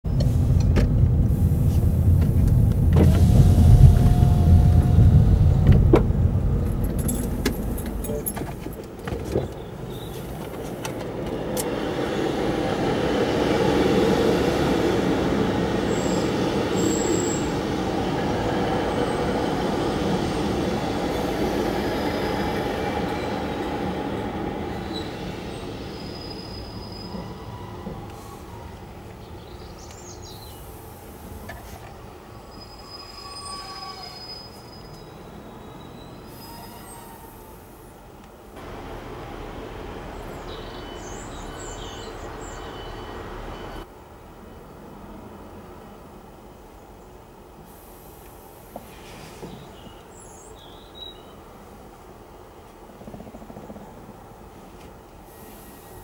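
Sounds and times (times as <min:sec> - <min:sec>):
car engine and road noise: 0:00.0 - 0:32.6, 0:37.9 - 0:47.6
diesel train passing: 0:00.0 - 0:56.0.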